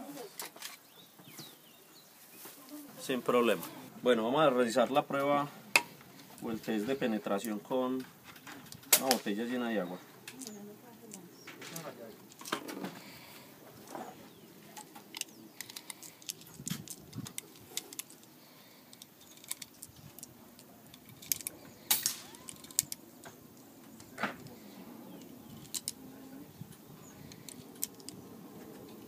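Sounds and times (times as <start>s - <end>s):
cartridges clicking into magazine: 18.9s - 23.0s, 25.2s - 26.0s.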